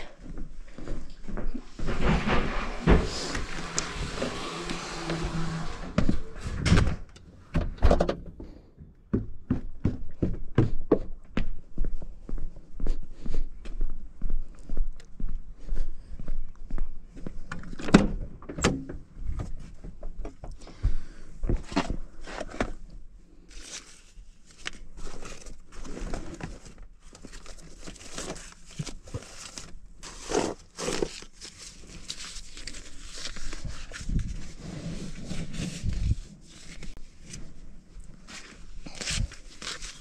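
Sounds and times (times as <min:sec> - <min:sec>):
knocks and scrapes of items handled: 0:01.4 - 0:07.0, 0:21.5 - 0:22.9, 0:23.7 - 0:37.6.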